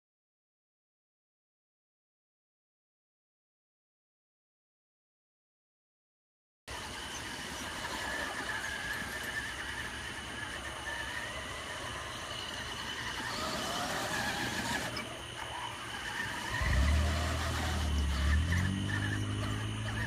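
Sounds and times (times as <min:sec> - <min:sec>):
toy car electric motor whining: 0:06.7 - 0:20.0.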